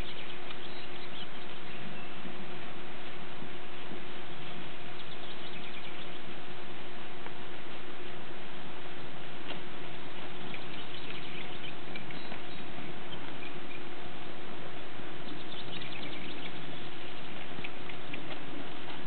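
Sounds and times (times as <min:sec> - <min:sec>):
faint low hum: 0:00.0 - 0:19.0
steady hiss: 0:00.0 - 0:19.0
hoofbeats on dirt: 0:15.3 - 0:19.0.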